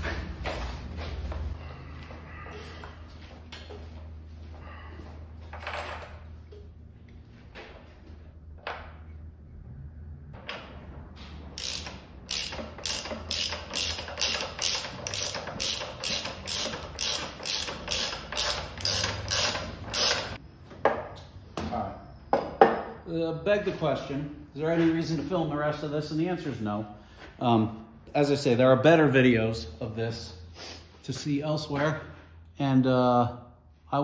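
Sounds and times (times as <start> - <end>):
ratchet wrench pawl clicking: 11.6 - 20.4.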